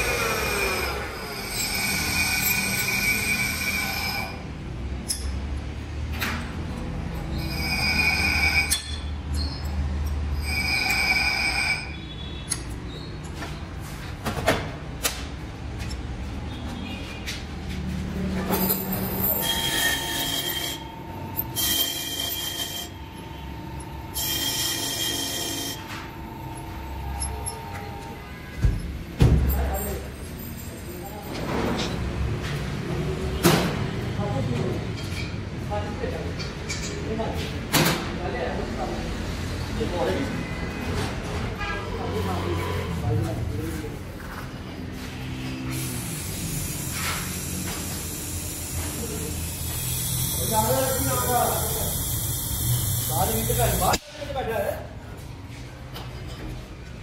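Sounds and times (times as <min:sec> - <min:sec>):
metal grinding on a grinding wheel: 0:00.0 - 0:04.5, 0:07.2 - 0:12.0, 0:18.5 - 0:28.2, 0:45.8 - 0:54.0
high-pitched metallic squeal: 0:00.0 - 0:04.6, 0:07.0 - 0:13.2, 0:18.5 - 0:28.9, 0:41.6 - 0:54.0
low machinery hum: 0:18.2 - 0:29.0
grinder motor hum: 0:19.1 - 0:28.2, 0:45.7 - 0:54.0.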